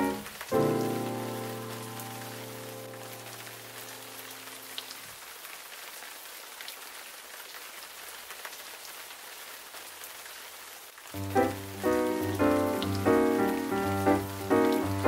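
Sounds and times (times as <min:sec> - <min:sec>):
background music chord: 0:00.0 - 0:04.0, 0:11.2 - 0:15.0
soft rain-like hiss: 0:00.0 - 0:15.0.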